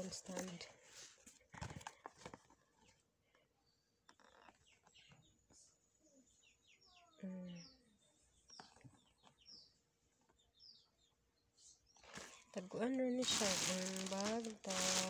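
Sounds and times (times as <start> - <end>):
faint bird chirps: 2.7 - 14.3.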